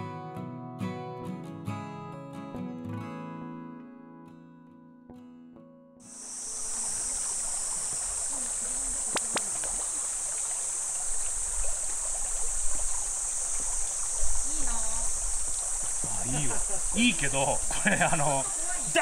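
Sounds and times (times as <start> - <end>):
shallow creek running: 6.1 - 19.0.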